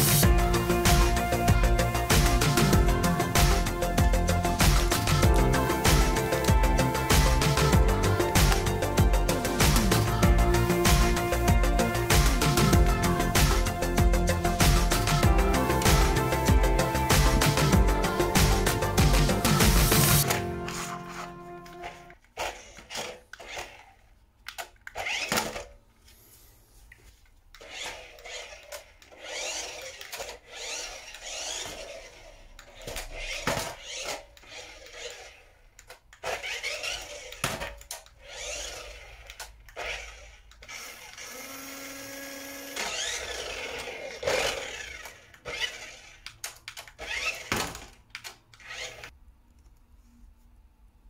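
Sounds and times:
toy car motor whirring: 19.9 - 25.8, 27.5 - 49.2.

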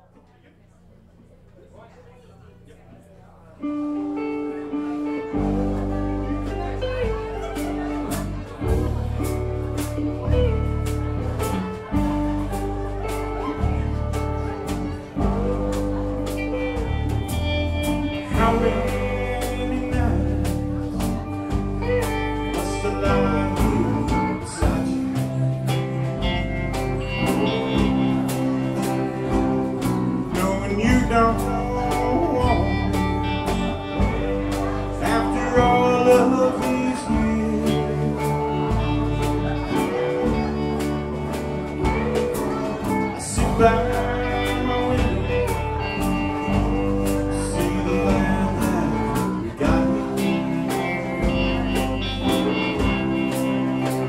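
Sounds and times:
live country band playing: 3.6 - 54.0
man singing lead: 14.4 - 54.0.

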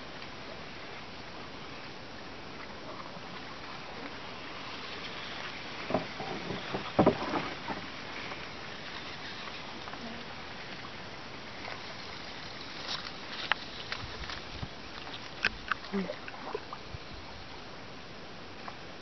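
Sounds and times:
outdoor background hiss: 0.0 - 19.0
knocks and thumps: 5.9 - 7.9.

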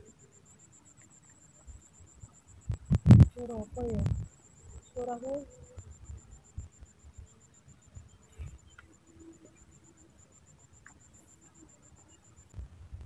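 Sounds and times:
insect trilling: 0.0 - 12.6
faint low thumps: 2.6 - 4.3.

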